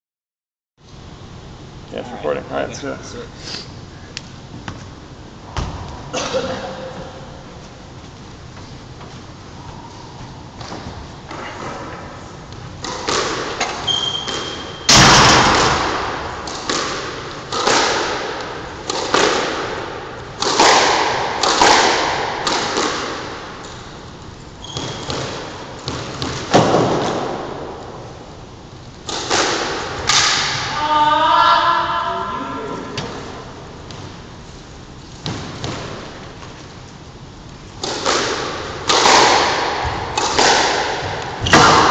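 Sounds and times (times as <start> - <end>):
squash ball impacts echoing: 5.5 - 7.4, 10.6 - 28.4, 29.0 - 30.8, 32.8 - 34.4, 35.2 - 36.6, 37.7 - 41.9.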